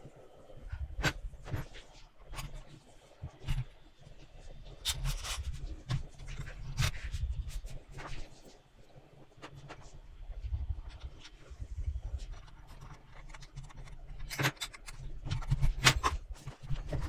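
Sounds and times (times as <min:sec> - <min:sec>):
metal toy parts clicking and rattling: 0:12.3 - 0:16.2.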